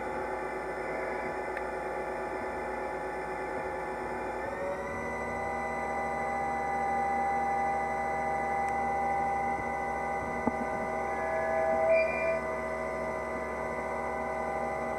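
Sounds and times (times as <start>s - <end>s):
lathe machine whine: 0.0s - 14.9s.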